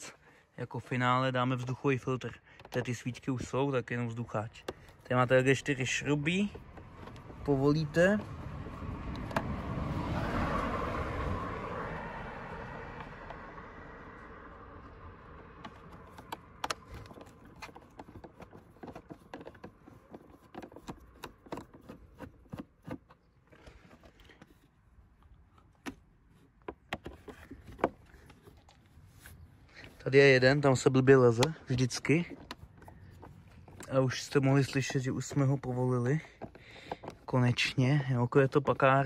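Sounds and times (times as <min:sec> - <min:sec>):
car passing: 0:05.9 - 0:17.8.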